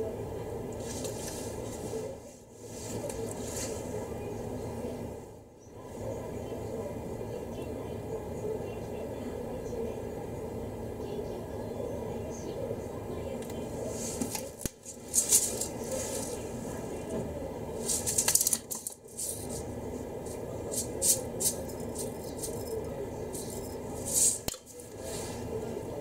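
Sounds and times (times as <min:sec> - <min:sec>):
steady low background noise: 0:00.0 - 0:26.0.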